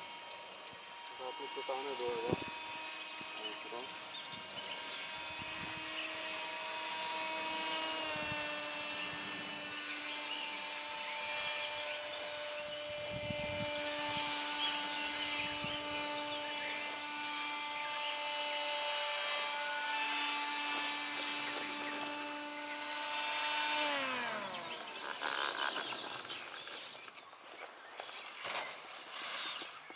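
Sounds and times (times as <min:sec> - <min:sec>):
model paramotor buzzing: 0:00.0 - 0:29.9.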